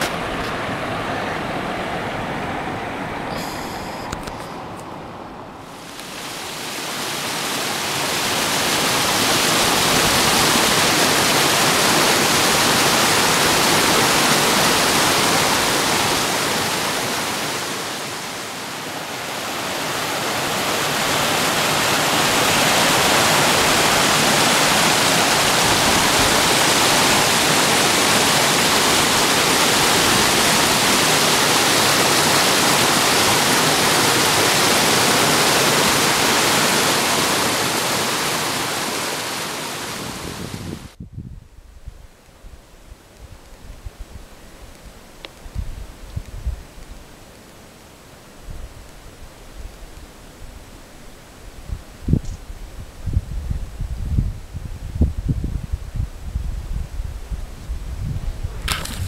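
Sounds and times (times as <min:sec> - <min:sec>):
stream rushing over rocks: 0:00.0 - 0:41.0, 0:58.6 - 0:59.0.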